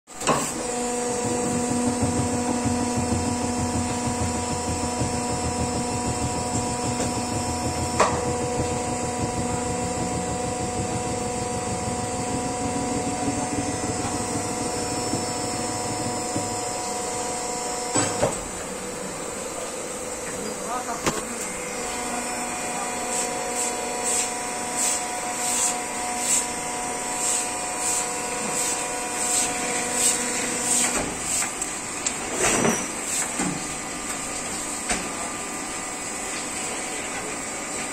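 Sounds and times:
machine hum over low rumble: 0.8s - 17.5s.

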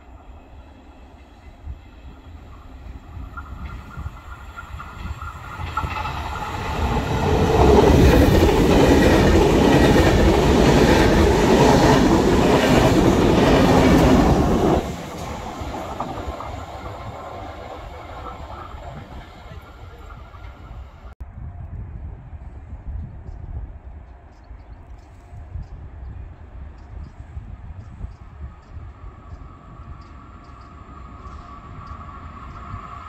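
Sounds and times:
train passing at speed: 0.0s - 21.2s, 26.4s - 33.0s
wheels clattering on rails: 3.3s - 21.1s.

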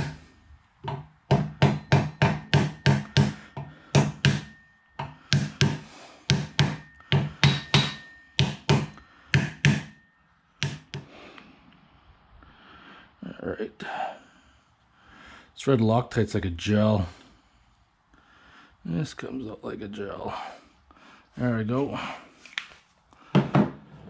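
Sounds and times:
brass hammer tapping metal: 0.0s - 11.4s.

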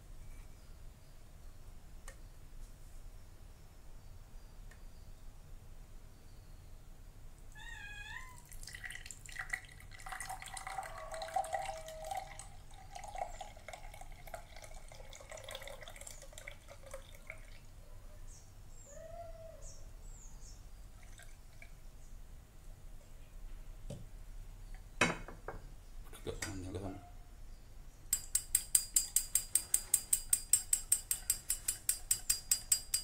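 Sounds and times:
liquid trickling into a glass: 8.4s - 17.8s, 21.0s - 21.8s.

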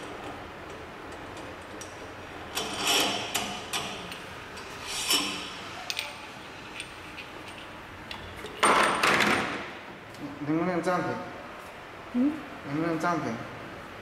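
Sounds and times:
metal parts scraping: 2.5s - 7.8s.

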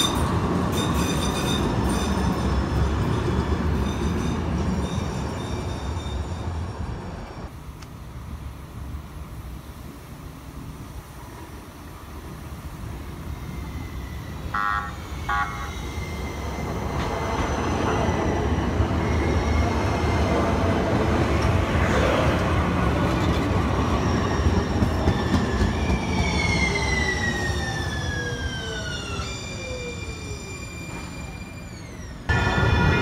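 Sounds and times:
train wheels rumbling on rails: 0.0s - 33.0s
train horn toots: 14.5s - 15.8s.

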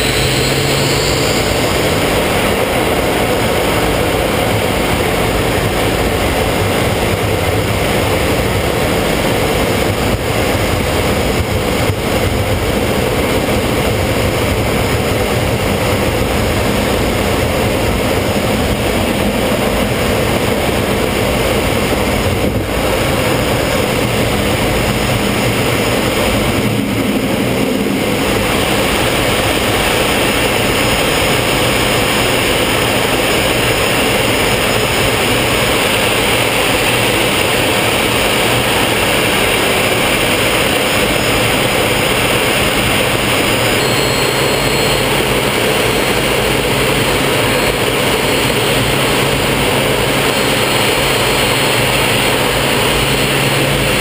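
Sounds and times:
jet engine running: 0.0s - 54.0s
rushing air: 0.0s - 54.0s
faint high tones: 43.8s - 45.1s.

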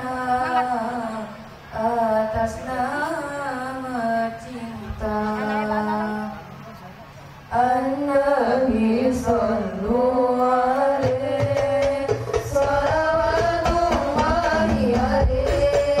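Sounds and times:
frame drums low beat: 11.0s - 16.0s.

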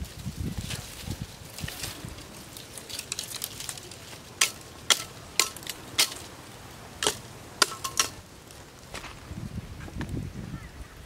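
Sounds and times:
knife chopping dry branches: 1.5s - 6.4s, 7.0s - 8.2s.

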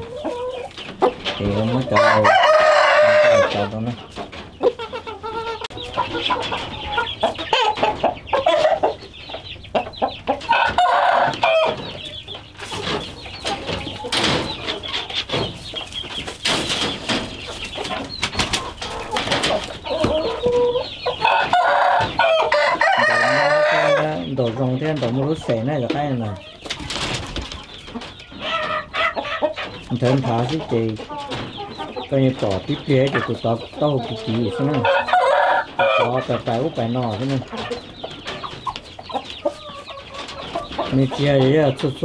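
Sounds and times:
chickens clucking: 0.0s - 42.0s.

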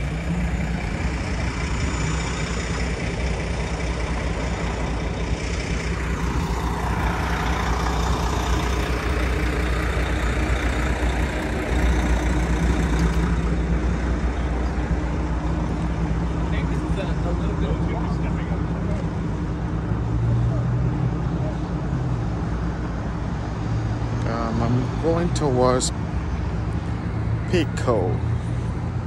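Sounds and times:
vehicle passing: 0.0s - 15.0s
heavy vehicle engine idling: 0.0s - 29.0s.

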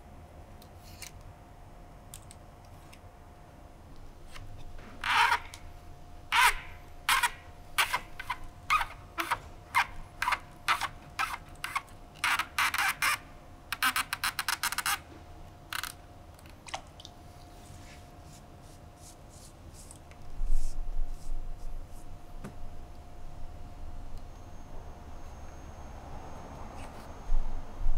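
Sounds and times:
cane strands scraping: 6.3s - 13.1s.

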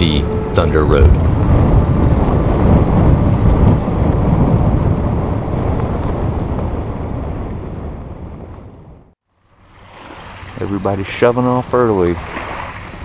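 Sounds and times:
water rushing along hull: 0.0s - 5.7s, 9.3s - 13.0s
wind on microphone: 0.0s - 11.0s.

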